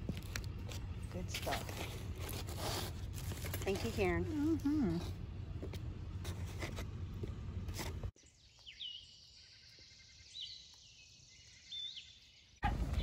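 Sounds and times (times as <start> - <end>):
low outdoor rumble: 0.0 - 8.1.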